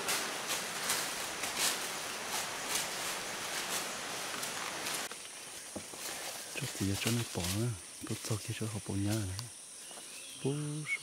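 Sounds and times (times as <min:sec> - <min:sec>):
rustling in dry leaves: 0:00.0 - 0:10.2
steady outdoor hiss: 0:00.0 - 0:11.0.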